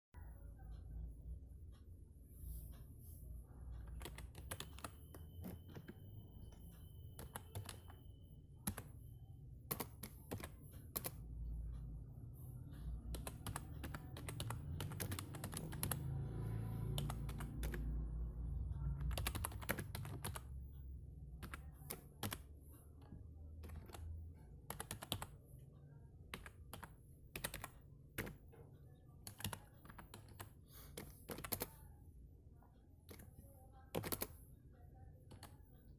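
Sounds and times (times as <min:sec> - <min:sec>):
phone keyboard typing clicks: 0:03.8 - 0:08.0, 0:08.6 - 0:09.0, 0:09.6 - 0:11.3, 0:13.1 - 0:16.2, 0:16.9 - 0:18.0, 0:18.9 - 0:20.5, 0:21.4 - 0:22.4, 0:23.0 - 0:25.4, 0:26.3 - 0:28.6, 0:29.2 - 0:31.8, 0:33.9 - 0:34.4, 0:35.3 - 0:35.6.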